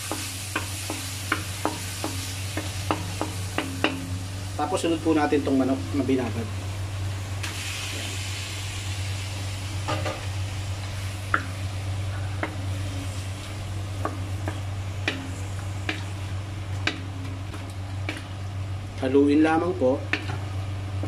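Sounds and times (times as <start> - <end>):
chicken sizzling in pan: 0.0 - 5.5, 7.4 - 16.4
steady low hum: 0.0 - 21.0
wooden spatula knocking on pan: 0.1 - 4.1.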